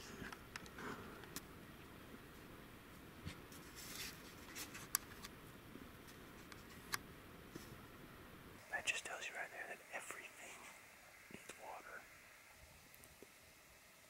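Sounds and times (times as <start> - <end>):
faint scratchy rustling: 2.3 - 5.3, 8.8 - 12.1.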